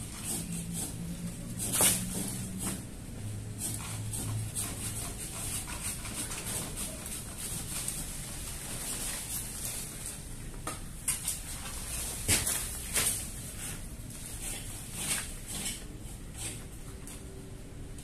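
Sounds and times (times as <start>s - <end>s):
branches and leaves rustling: 7.6s - 15.1s.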